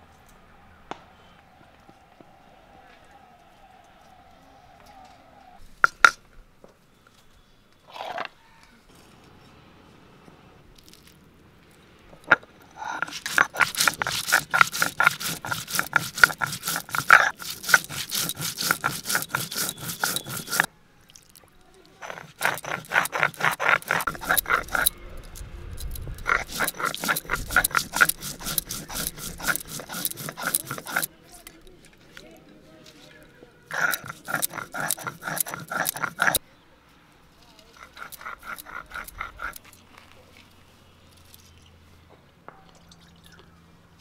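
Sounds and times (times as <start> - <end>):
stone roller grinding on stone: 12.2 - 20.7, 22.0 - 31.5, 33.7 - 36.4, 37.8 - 39.8.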